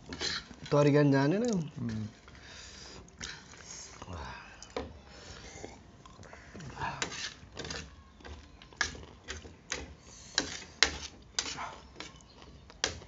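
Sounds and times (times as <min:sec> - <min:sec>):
fork on a plate: 0:07.0 - 0:13.0
chewing crunchy food: 0:08.6 - 0:09.8, 0:10.4 - 0:13.0.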